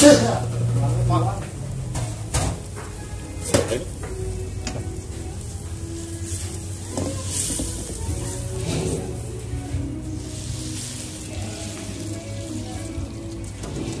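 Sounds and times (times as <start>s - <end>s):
sauce bubbling and sizzling: 0.3s - 14.0s
spatula scraping in a wok: 4.6s - 14.0s.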